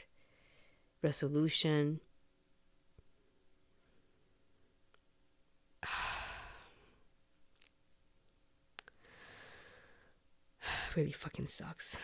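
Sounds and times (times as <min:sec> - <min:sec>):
woman sighing: 0:05.8 - 0:07.0.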